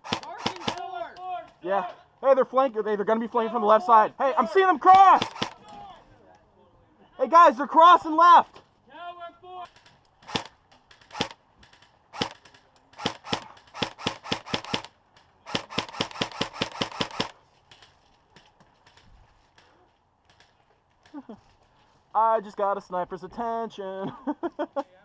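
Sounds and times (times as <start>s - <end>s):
airsoft gun firing: 0.0s - 0.9s, 4.9s - 5.7s, 9.7s - 17.4s.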